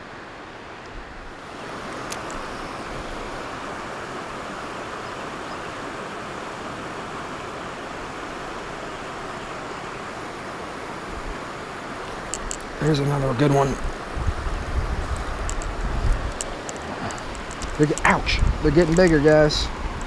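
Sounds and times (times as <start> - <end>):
river water rushing: 0.0 - 20.0
light clicks: 1.9 - 2.4, 12.1 - 12.7, 15.1 - 18.1, 18.8 - 19.4.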